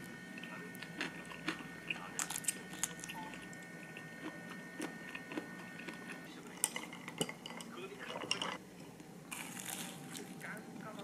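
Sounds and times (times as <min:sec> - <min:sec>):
person chewing food: 0:00.0 - 0:07.2.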